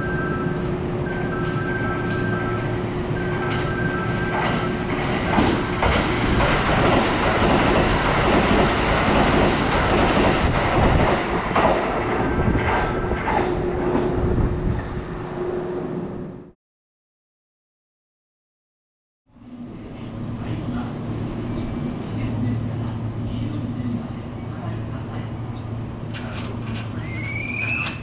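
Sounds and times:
train passing through station: 0:00.0 - 0:16.6, 0:19.3 - 0:28.0.

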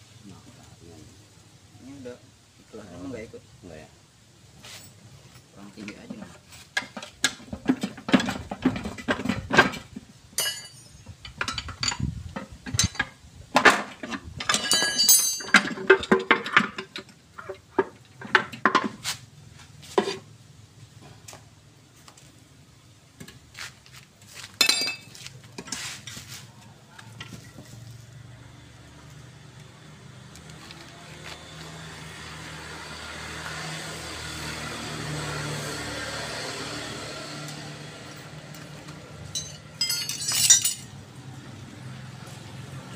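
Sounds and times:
hand tools knocking on metal housing: 0:10.4 - 0:17.1, 0:39.3 - 0:40.9.

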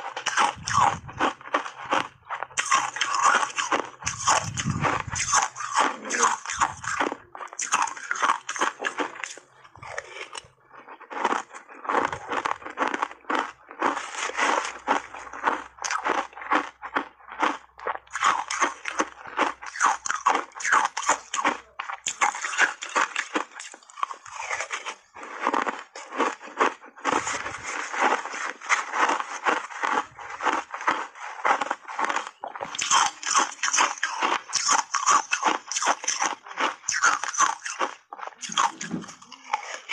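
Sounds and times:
chewing crunchy ice: 0:00.0 - 0:39.9.

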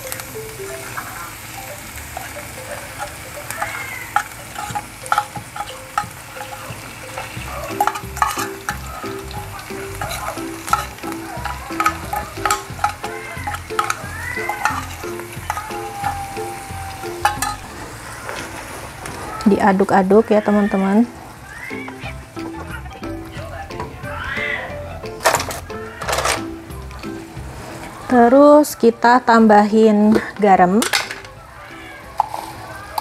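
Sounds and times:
fish sizzling in a hot pan: 0:00.0 - 0:22.6
spatula tapping a tin can: 0:02.2 - 0:17.6.

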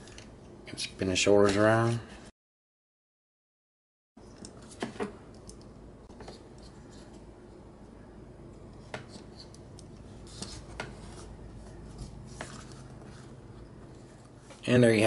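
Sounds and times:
faint room hum: 0:00.0 - 0:02.3, 0:04.2 - 0:15.0.

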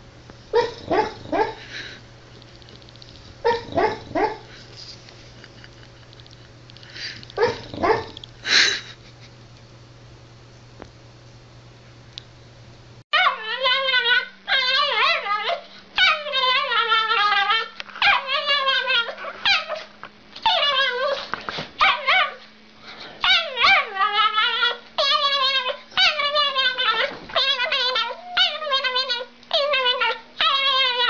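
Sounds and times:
small dog crying: 0:13.2 - 0:22.4, 0:23.2 - 0:31.0.

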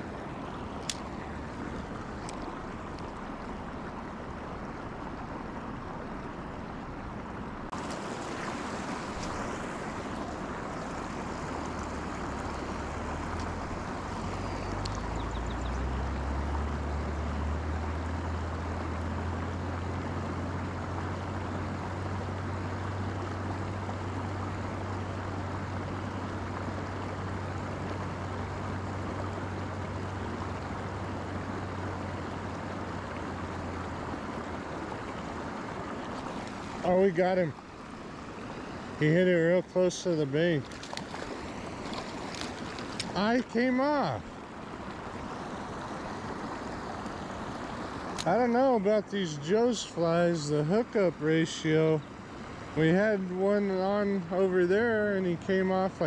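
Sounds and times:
flowing river water: 0:00.0 - 0:56.0.

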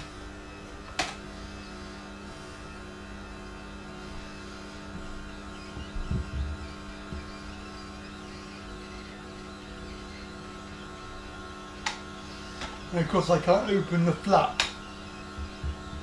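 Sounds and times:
juicer motor humming: 0:00.0 - 0:16.0
low thumps: 0:05.7 - 0:07.4.

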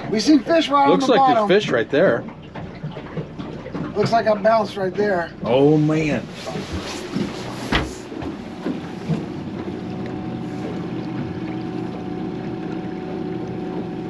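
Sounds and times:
outboard motors humming: 0:00.0 - 0:14.0.

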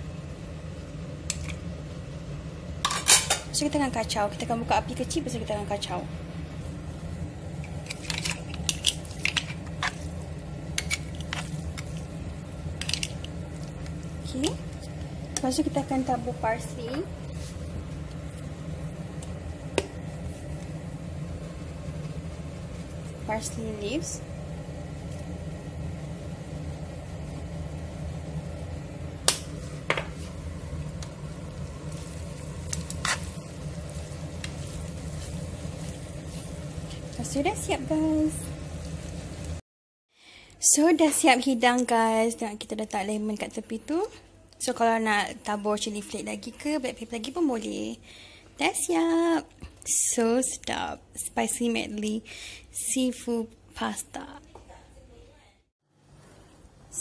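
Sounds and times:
low steady hum: 0:00.0 - 0:39.6
pasta sizzling faintly in a pan: 0:00.0 - 0:39.6.

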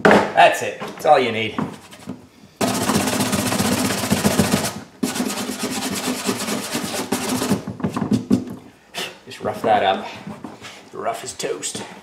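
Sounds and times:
wire brush scrubbing plastic: 0:01.8 - 0:07.7.

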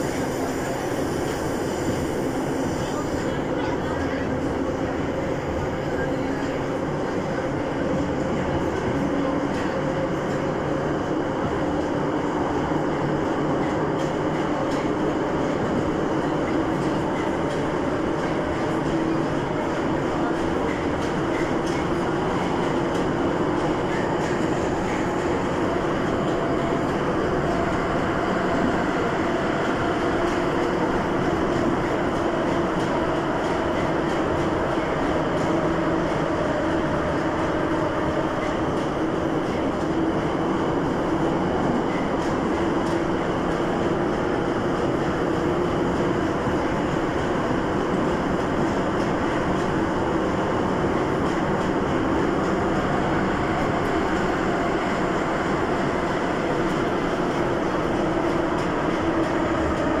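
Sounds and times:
train wheels rumbling on rail: 0:00.0 - 1:00.0.

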